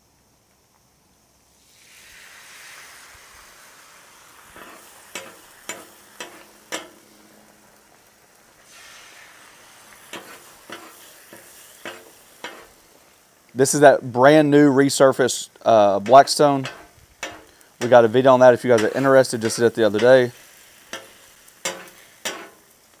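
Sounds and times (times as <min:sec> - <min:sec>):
eggs sizzling on a griddle: 0:00.0 - 0:23.0
metal spatula scraping griddle: 0:04.5 - 0:07.9, 0:10.0 - 0:12.9, 0:15.9 - 0:22.8.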